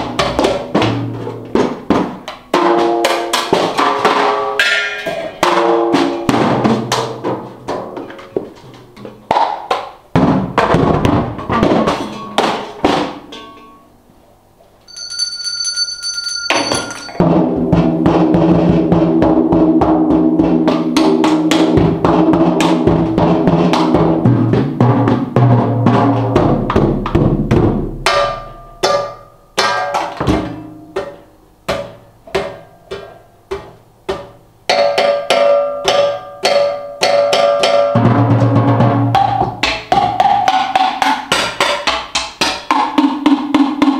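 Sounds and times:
drum rolls on toms and snare: 0.0s - 13.4s, 14.9s - 43.9s
brief high ringing tone: 14.9s - 17.2s.

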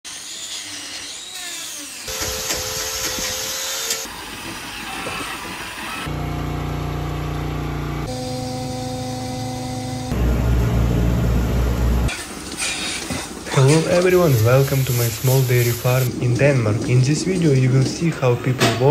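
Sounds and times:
power tool grinding: 0.1s - 10.7s
machinery humming: 6.0s - 18.9s.

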